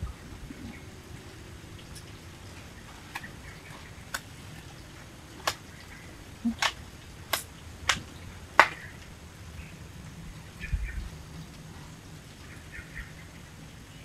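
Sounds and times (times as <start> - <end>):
air rifle clicks: 6.6 - 9.1.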